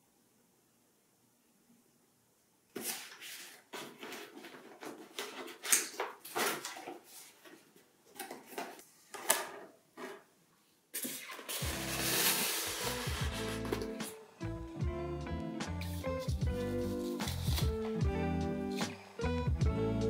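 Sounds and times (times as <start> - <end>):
cardboard rustling and scraping: 2.7 - 10.3, 11.0 - 14.1, 16.0 - 17.9.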